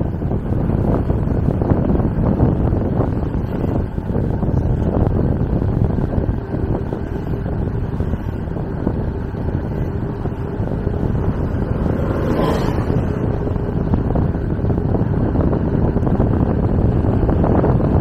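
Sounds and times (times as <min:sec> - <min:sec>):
wind buffeting microphone: 0:00.0 - 0:18.0
bus passing by: 0:02.7 - 0:18.0.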